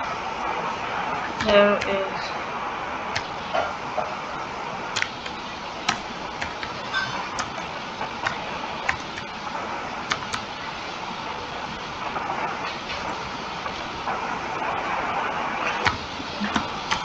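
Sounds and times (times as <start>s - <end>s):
steady background hiss: 0.0s - 17.0s
keyboard keys clicking: 1.4s - 2.0s, 5.0s - 7.6s, 8.2s - 9.3s, 10.1s - 10.4s.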